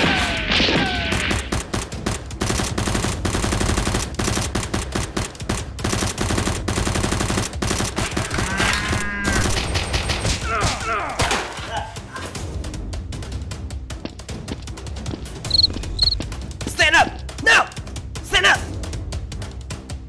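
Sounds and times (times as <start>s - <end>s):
rapid automatic gunfire: 1.1s - 10.3s.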